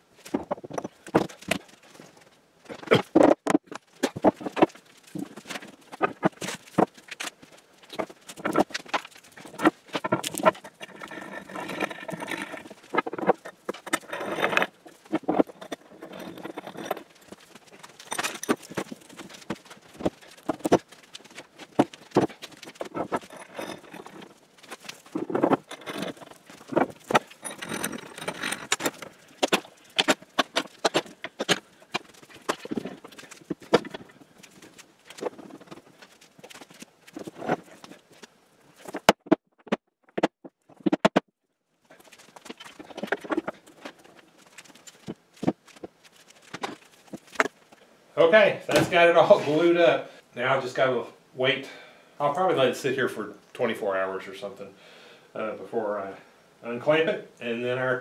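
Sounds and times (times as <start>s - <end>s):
metal clamp parts clanking: 8.4s - 19.5s, 22.1s - 34.2s.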